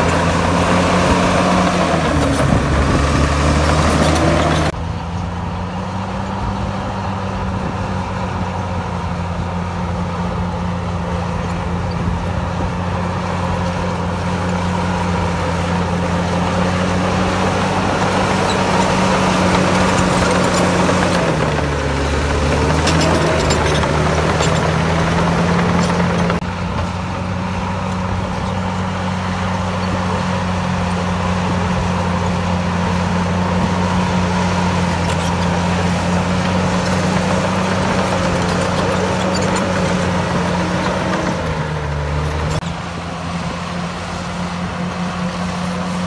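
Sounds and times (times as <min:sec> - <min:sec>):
heavy diesel engine running: 0:00.0 - 0:46.0.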